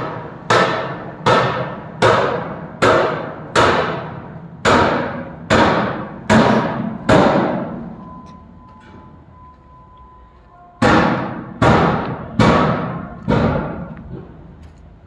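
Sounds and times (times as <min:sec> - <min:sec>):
loud booming impacts: 0:00.0 - 0:07.9, 0:10.8 - 0:14.4.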